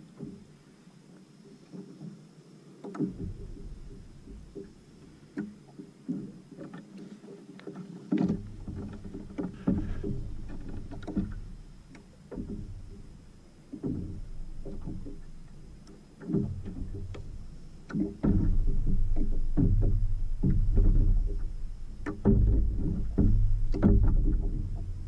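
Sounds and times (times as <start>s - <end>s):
water lapping against kayak hull: 0.0s - 25.0s
wind rumble on microphone: 3.0s - 6.3s, 8.1s - 25.0s
knocks on kayak hull: 8.2s - 11.6s, 17.9s - 24.9s.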